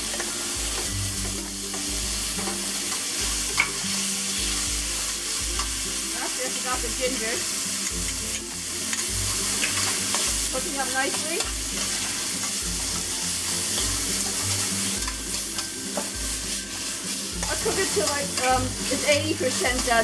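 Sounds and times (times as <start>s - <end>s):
spatula scraping and tapping pan: 0.0s - 4.8s, 5.4s - 5.8s, 7.8s - 20.0s
chicken sizzling in a pan: 0.0s - 20.0s.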